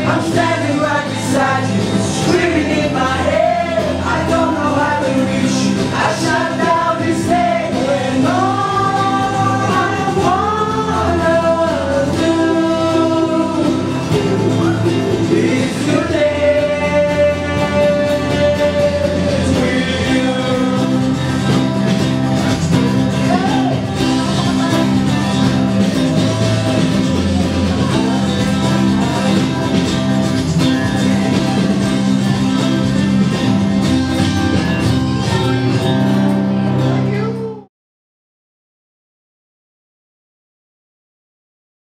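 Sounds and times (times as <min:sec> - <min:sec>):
man singing: 0:00.0 - 0:29.9
acoustic guitar: 0:00.0 - 0:37.7.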